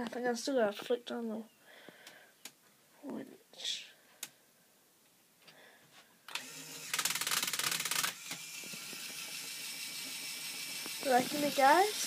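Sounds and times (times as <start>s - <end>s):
plastic gears rattling: 6.3s - 12.0s
toy motor whirring hum: 6.3s - 12.0s.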